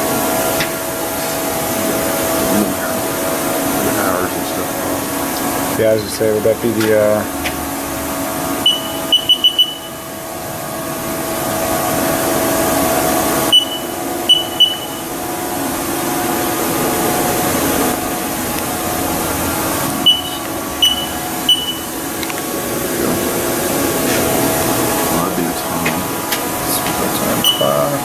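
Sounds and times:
steady machine hum: 0.0s - 28.0s
control panel short beeps: 8.6s - 10.0s, 13.5s - 15.0s, 20.0s - 21.9s, 27.4s - 27.8s.

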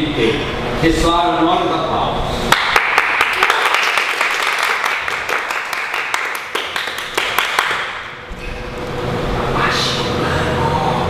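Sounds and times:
people clapping: 2.5s - 8.2s.

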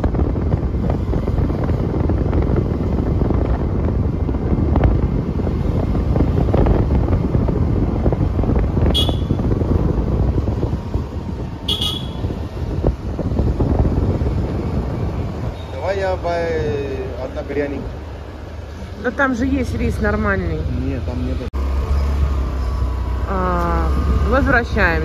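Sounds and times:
wind buffeting microphone: 0.0s - 20.7s
vehicle road and engine noise: 0.0s - 25.0s.

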